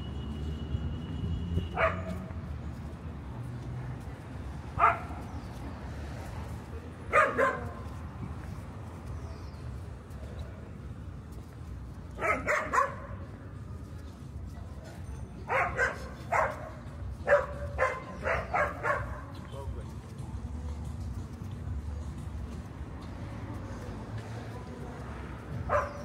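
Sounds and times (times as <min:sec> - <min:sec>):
street traffic hum: 0:00.0 - 0:26.0
dog barking: 0:01.7 - 0:02.4, 0:04.8 - 0:05.3, 0:07.1 - 0:08.0, 0:12.1 - 0:13.3, 0:15.5 - 0:19.4, 0:25.6 - 0:26.0.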